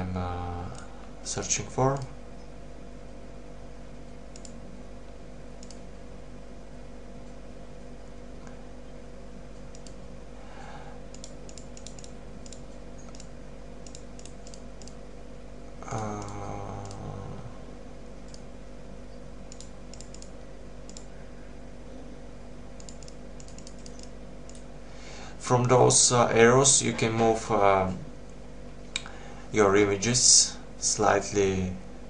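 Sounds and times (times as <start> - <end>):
steady electrical hum: 0.0 - 32.0
computer mouse clicking: 4.3 - 4.6, 5.6 - 5.8, 9.6 - 10.0, 11.1 - 15.0, 16.0 - 17.1, 18.2 - 18.5, 19.5 - 21.1, 22.8 - 24.7
man humming briefly: 15.8 - 17.6.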